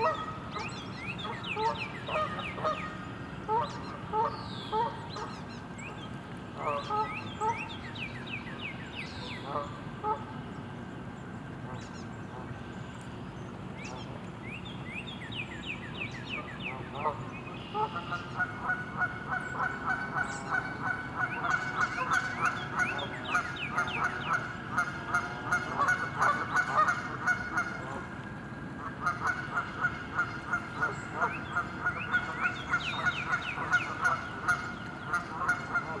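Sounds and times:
geese honking: 0:00.0 - 0:05.6, 0:06.5 - 0:07.8, 0:09.2 - 0:10.4, 0:16.3 - 0:28.2, 0:28.8 - 0:36.0.

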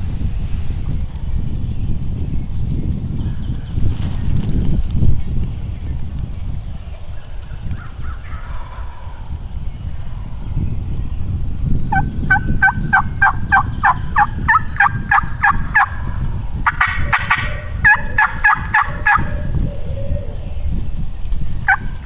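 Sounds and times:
turkey gobble: 0:08.1 - 0:09.2, 0:11.9 - 0:16.0, 0:16.6 - 0:19.9, 0:21.7 - 0:21.9
turkey yelping: 0:16.7 - 0:19.6.

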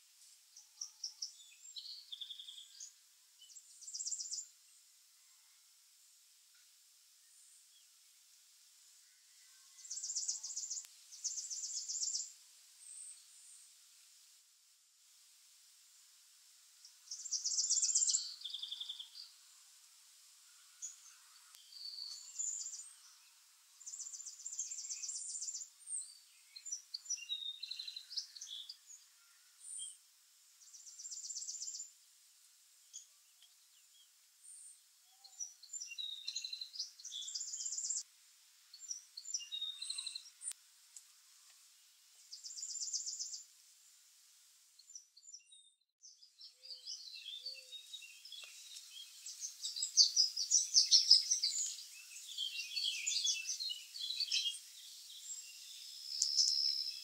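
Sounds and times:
birds chirping: 0:17.1 - 0:19.4, 0:32.9 - 0:38.0, 0:44.9 - 0:57.0.

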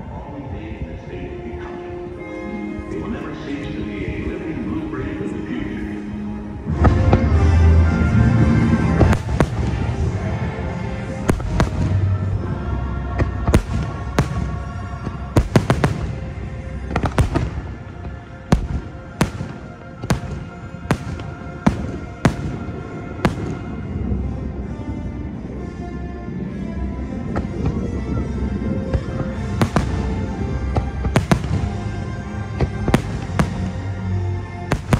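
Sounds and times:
orchestral music: 0:00.0 - 0:34.9
fireworks bangs: 0:08.5 - 0:10.4, 0:11.2 - 0:12.3, 0:13.2 - 0:24.1, 0:29.0 - 0:34.1, 0:34.7 - 0:34.9.

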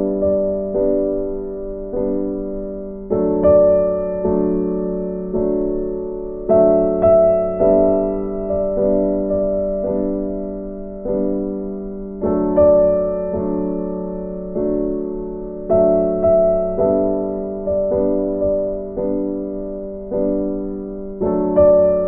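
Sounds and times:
gentle piano melody: 0:00.0 - 0:22.0.

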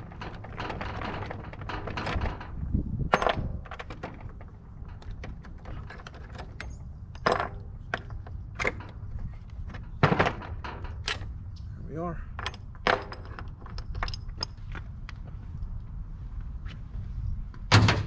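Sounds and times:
metal scraping and clinking: 0:00.0 - 0:11.4.

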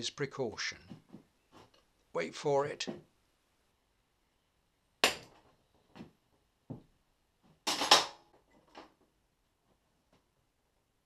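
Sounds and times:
sharp metallic cracks and knocks: 0:05.0 - 0:05.4, 0:07.6 - 0:08.9.

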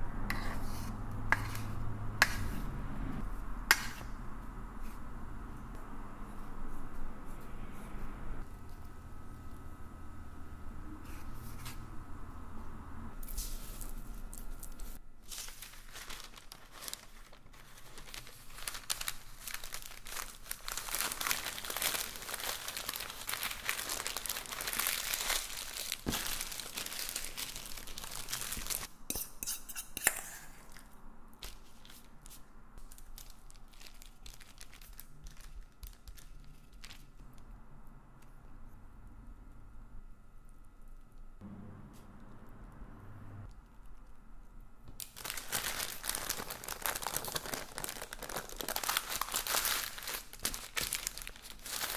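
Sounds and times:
parchment paper crinkling: 0:13.2 - 0:28.9, 0:31.4 - 0:37.3, 0:44.9 - 0:51.9.

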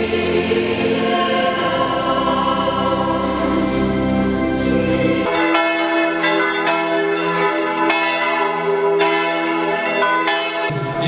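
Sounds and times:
church bells ringing: 0:00.0 - 0:11.0.

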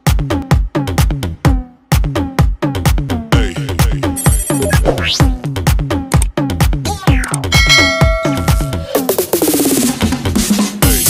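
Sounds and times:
electronic dance music: 0:01.9 - 0:11.0
pounding kick drum: 0:07.5 - 0:08.9.

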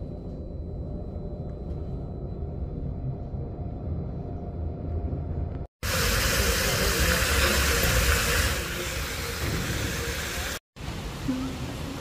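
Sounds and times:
train rumbling: 0:00.0 - 0:12.0
fountain water jets splashing: 0:05.9 - 0:12.0.

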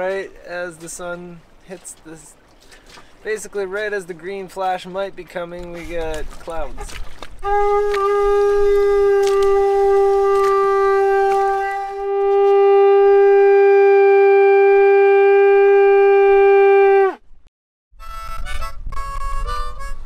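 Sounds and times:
conch shell horn blowing: 0:07.4 - 0:17.2.

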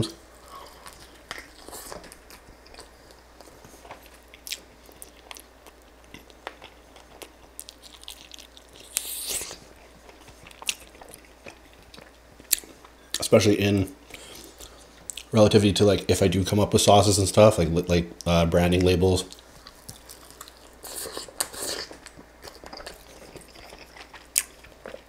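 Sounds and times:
person chewing crispy chicken: 0:00.4 - 0:13.0, 0:19.3 - 0:25.0.

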